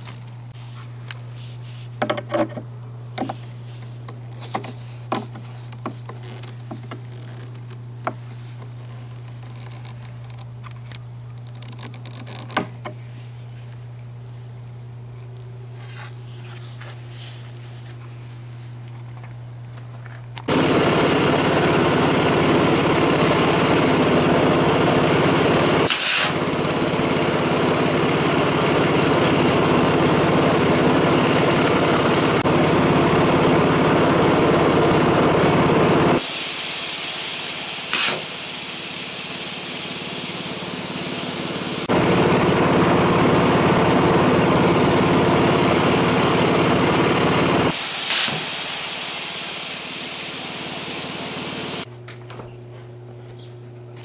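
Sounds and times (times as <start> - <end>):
motor running with mechanical pulse: 3.2 - 13.1, 20.0 - 51.9
air cannon firing pops: 25.8 - 26.4, 36.4 - 40.3, 47.8 - 49.0.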